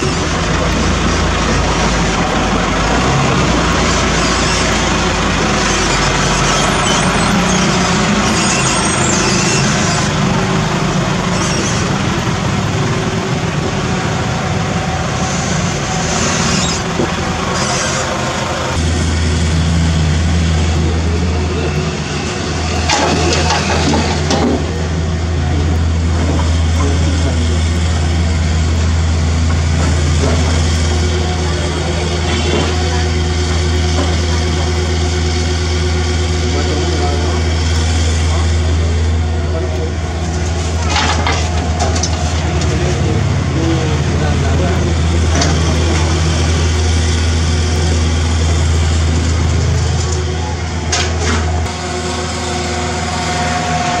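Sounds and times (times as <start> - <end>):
diesel engines running: 0.0 - 54.0
debris clattering: 22.8 - 24.8, 40.7 - 42.8.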